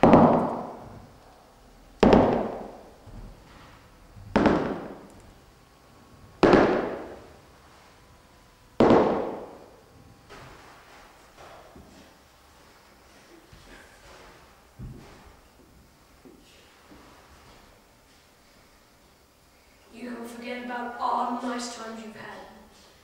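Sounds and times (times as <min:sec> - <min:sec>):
heavy echoing footsteps: 0:00.0 - 0:01.2, 0:02.0 - 0:05.2, 0:06.4 - 0:07.4, 0:08.8 - 0:09.8.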